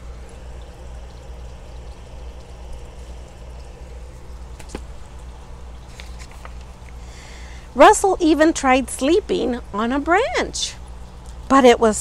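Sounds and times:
low hum: 0.0 - 11.5.

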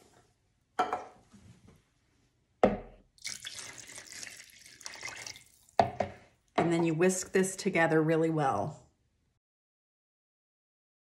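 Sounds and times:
broth pouring into a bowl: 3.2 - 5.8.

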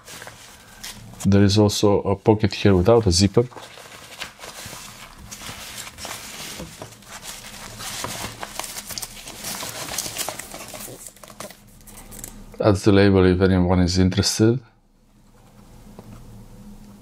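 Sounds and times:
fabric rustling: 2.6 - 11.0.

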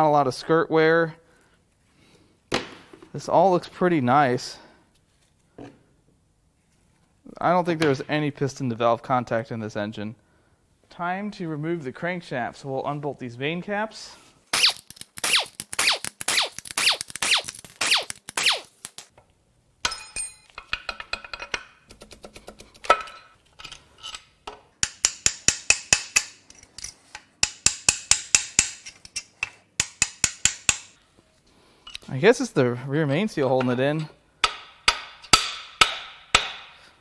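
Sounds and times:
steel parts clinking: 14.6 - 19.0, 19.8 - 21.6.

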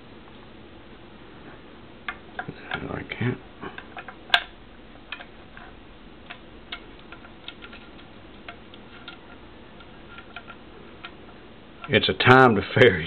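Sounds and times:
faint metal clicks and taps: 5.1 - 12.0.

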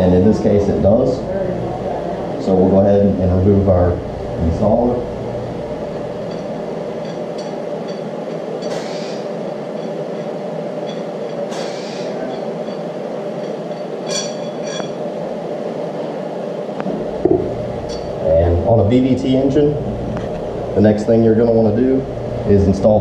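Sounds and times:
steady background hum: 0.0 - 23.0
light metal pings: 6.2 - 8.9, 9.5 - 11.4, 12.2 - 15.0
ringing metal clinks: 6.2 - 11.4, 12.2 - 15.0, 17.8 - 18.2
metal rod scraping: 6.3 - 15.0.

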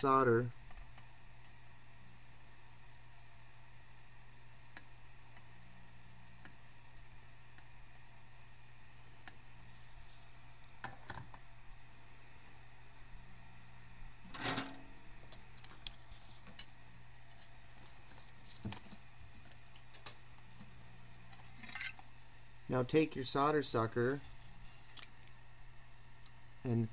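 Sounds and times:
low electrical hum: 0.0 - 26.9.

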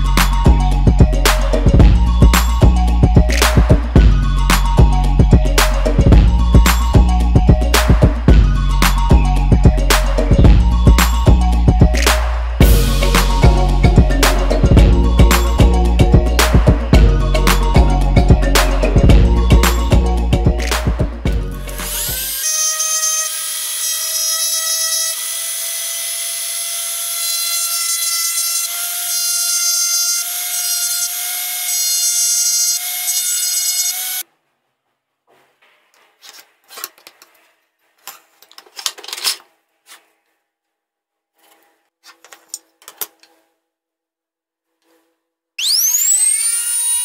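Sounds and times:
music: 0.0 - 22.4
rotary engraving tool whining: 21.7 - 34.2, 45.6 - 47.0.

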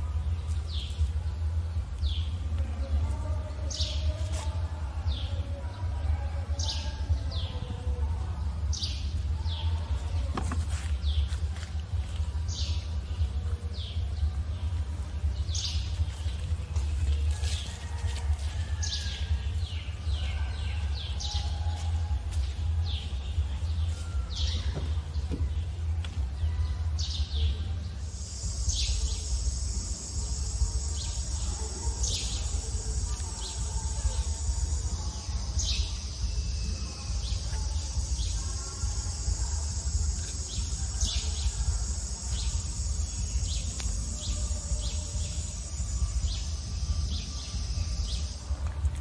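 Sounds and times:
high-pitched insect drone: 28.0 - 48.9.

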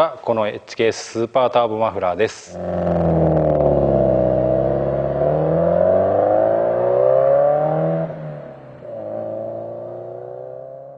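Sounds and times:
car engine accelerating: 2.5 - 10.9.

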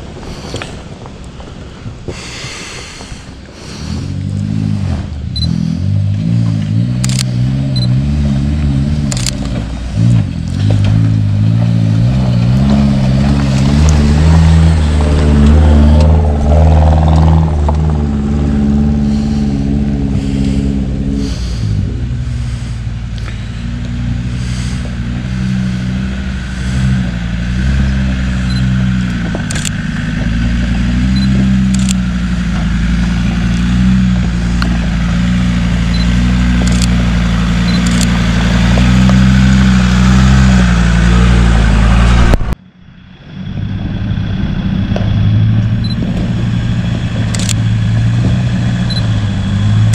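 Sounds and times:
engine running at low revs: 0.0 - 49.9
sharp clicks: 7.0 - 7.9, 9.1 - 9.6, 29.4 - 29.8, 31.2 - 32.0, 36.0 - 37.0, 37.7 - 38.2, 47.3 - 47.6.

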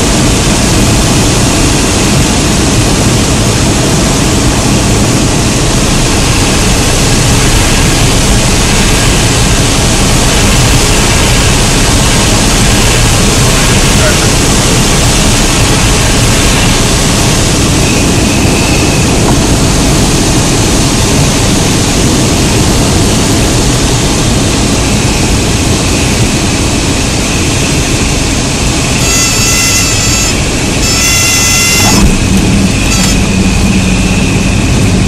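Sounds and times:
plane cabin engine and wind noise: 0.0 - 35.0
high warning tone: 28.6 - 35.0.

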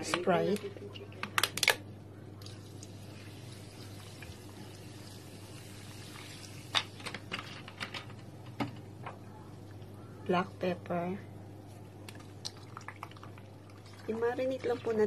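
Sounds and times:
soda pouring: 2.4 - 7.0, 12.1 - 15.0.

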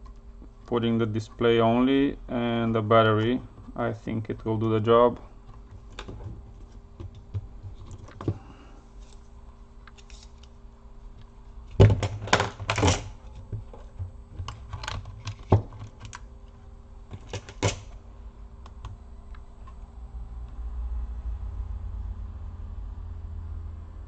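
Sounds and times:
hard plastic clicks and knocks: 17.1 - 17.8.

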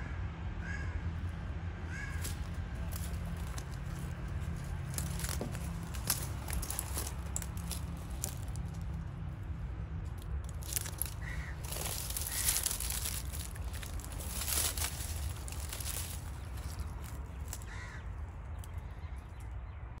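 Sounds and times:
footsteps crunching dry leaves: 1.9 - 18.8.

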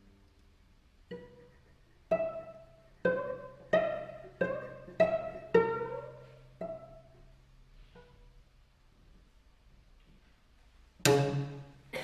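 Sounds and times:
plucked cello note: 11.0 - 11.8.

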